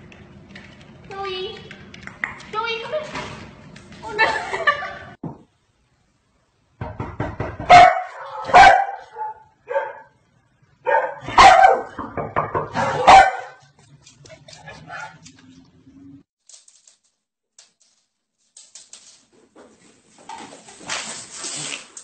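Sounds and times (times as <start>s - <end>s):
dog barking: 7.7s - 10.2s, 10.8s - 12.0s, 12.6s - 13.6s, 14.7s - 15.2s.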